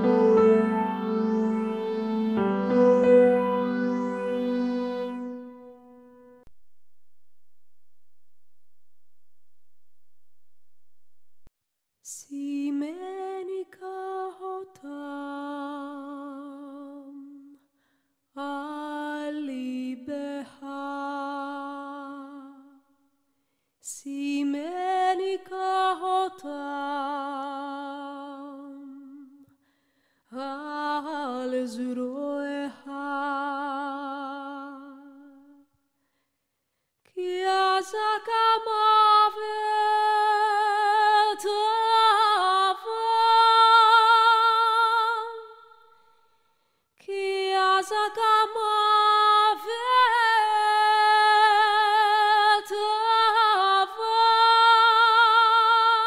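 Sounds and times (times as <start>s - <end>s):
person singing unaccompanied: 0.0s - 5.5s.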